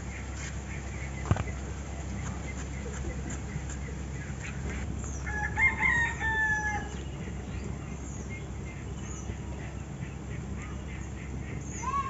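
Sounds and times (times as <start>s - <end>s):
rooster crowing: 5.2s - 7.0s.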